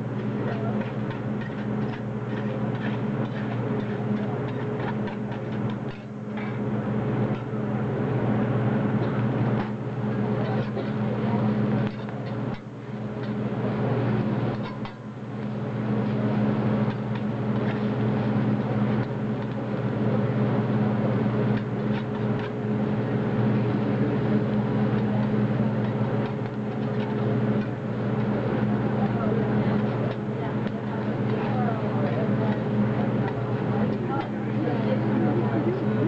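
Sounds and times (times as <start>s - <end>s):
exhaust hood humming: 0.0s - 36.0s
metal spatulas scraping on griddle: 0.4s - 6.6s.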